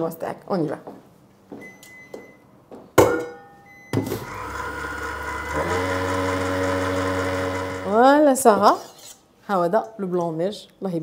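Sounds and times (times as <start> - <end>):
stand mixer motor whipping: 4.2 - 8.0.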